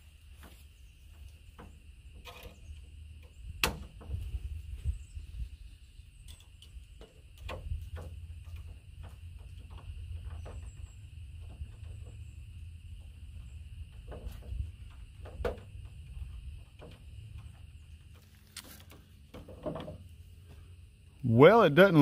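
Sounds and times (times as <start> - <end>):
high insect drone: 0.0 - 22.0
clicks and knocks on wire fence: 6.2 - 12.2, 13.9 - 20.0.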